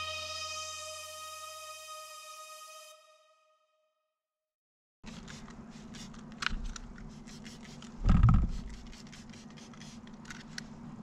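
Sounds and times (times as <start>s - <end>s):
spray bottle spritzing: 5.1s - 6.2s, 7.0s - 10.0s.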